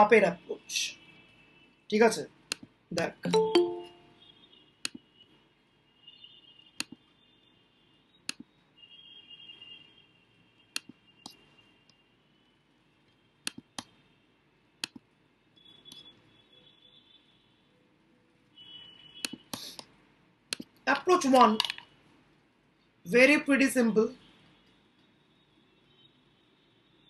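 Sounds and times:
computer mouse clicks: 2.5s - 2.7s, 4.8s - 5.0s, 6.8s - 7.0s, 13.4s - 14.0s, 14.8s - 15.0s, 19.2s - 19.9s.

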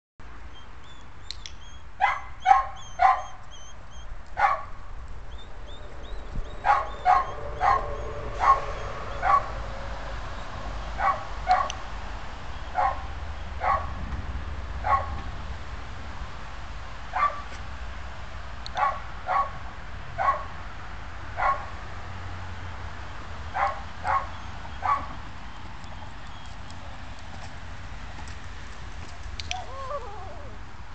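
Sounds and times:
low rumble of wind: 0.2s - 30.9s
dog barking: 2.0s - 3.4s, 4.4s - 4.7s, 6.6s - 9.6s, 11.0s - 11.8s, 12.7s - 13.9s, 14.8s - 15.2s, 17.2s - 17.5s, 18.8s - 19.6s, 20.2s - 20.5s, 21.4s - 21.7s, 23.6s - 25.1s.

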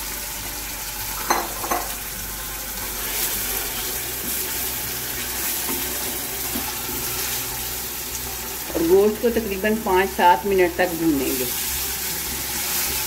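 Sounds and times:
meat sizzling in hot oil: 0.0s - 13.0s.

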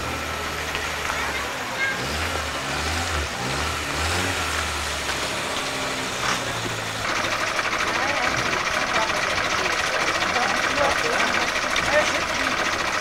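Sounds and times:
car engine running low: 0.0s - 13.0s
rapid ticking: 7.0s - 13.0s.

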